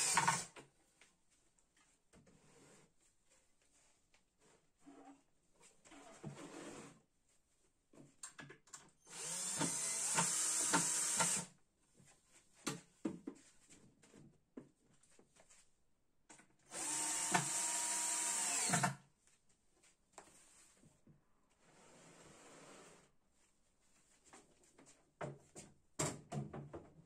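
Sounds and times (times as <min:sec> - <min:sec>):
cordless drill whining: 0:00.0 - 0:00.5, 0:09.1 - 0:11.5, 0:16.7 - 0:19.0.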